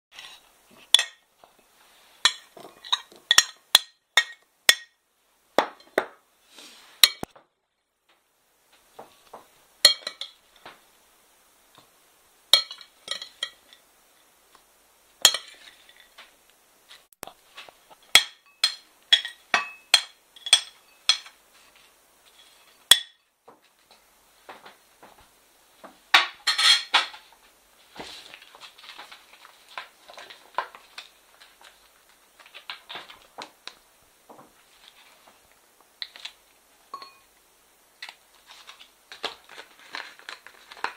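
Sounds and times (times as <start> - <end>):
metal spoon clinking on glass bowl: 2.2 - 4.9, 9.8 - 10.4, 12.6 - 13.8, 18.2 - 21.4, 36.9 - 37.3.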